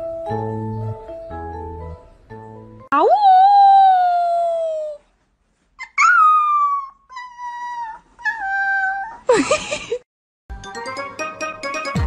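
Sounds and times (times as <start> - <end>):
music: 0.0 - 2.9, 10.5 - 12.0.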